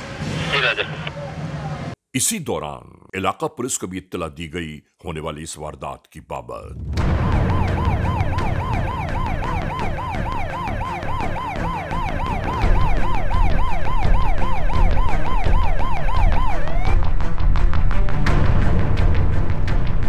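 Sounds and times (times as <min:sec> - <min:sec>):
low rumble: 0:06.7 - 0:09.3
police siren yelping: 0:07.2 - 0:17.0.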